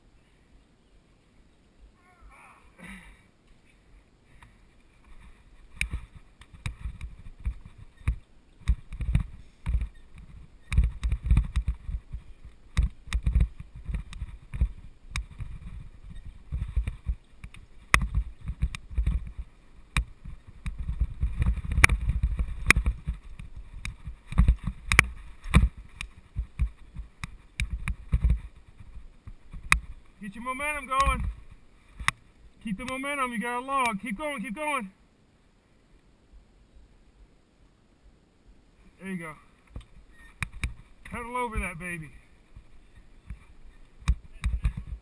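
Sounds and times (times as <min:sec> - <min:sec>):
bike rattling over bumps: 0:04.7 - 0:32.3, 0:42.5 - 0:45.0
bike tyres rumbling on dirt: 0:05.2 - 0:32.3.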